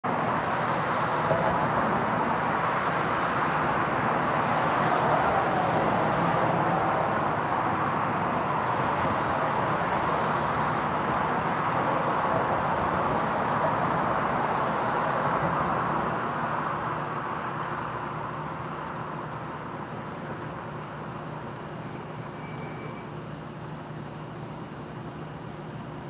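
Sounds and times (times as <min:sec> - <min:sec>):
car passing: 0:00.1 - 0:18.1
road traffic hiss: 0:00.1 - 0:26.0.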